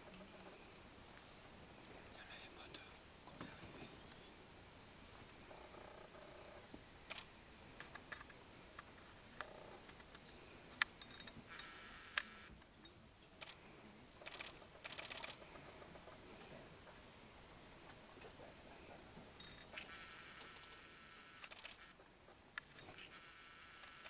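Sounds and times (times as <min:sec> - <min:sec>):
camera shutter clicks: 0:14.2 - 0:15.4, 0:19.6 - 0:22.0, 0:22.6 - 0:24.0.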